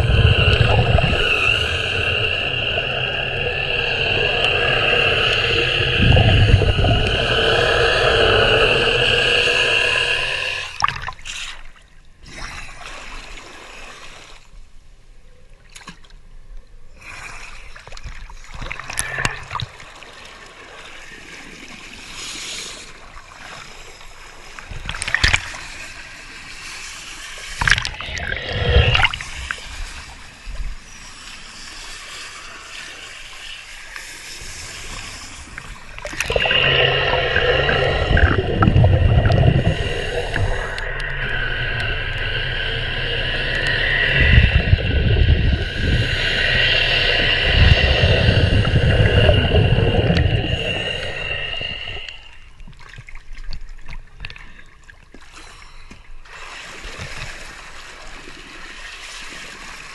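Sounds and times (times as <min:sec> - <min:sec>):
underwater brush whining: 0:00.0 - 0:11.0, 0:35.5 - 0:52.6.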